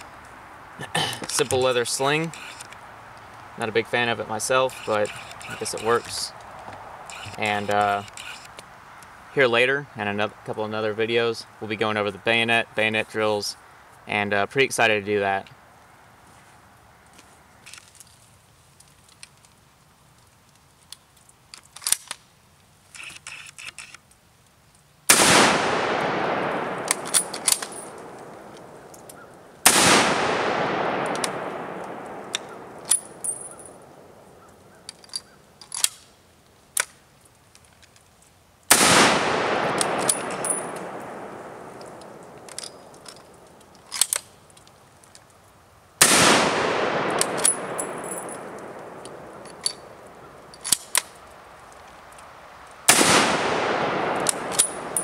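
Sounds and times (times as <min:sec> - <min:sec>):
rifle bolt metallic clicks: 0:01.2 - 0:02.8, 0:04.7 - 0:06.5, 0:07.1 - 0:09.1, 0:20.9 - 0:22.2, 0:25.1 - 0:36.1, 0:38.7 - 0:45.3, 0:46.0 - 0:51.2, 0:52.9 - 0:55.0
rifle shots with long echo: 0:25.1 - 0:34.4, 0:38.7 - 0:43.5, 0:46.0 - 0:50.6, 0:52.8 - 0:55.0.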